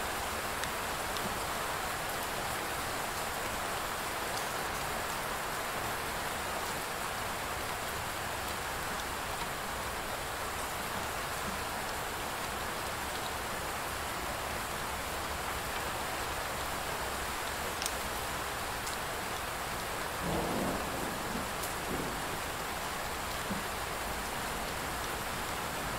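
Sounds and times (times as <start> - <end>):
steady rain falling: 0.0 - 25.9
low rumble of thunder: 20.2 - 23.8.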